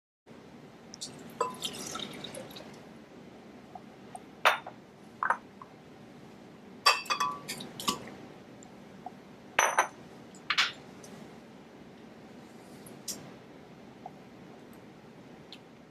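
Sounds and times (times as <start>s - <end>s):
juice pouring into blender jar: 1.5s - 2.8s
clinks and knocks on glass: 6.9s - 7.4s, 9.6s - 10.8s.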